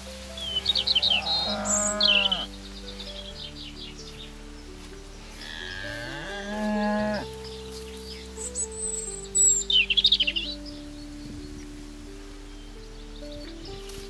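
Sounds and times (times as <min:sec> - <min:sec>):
cow mooing: 0:00.7 - 0:02.5, 0:05.4 - 0:07.4.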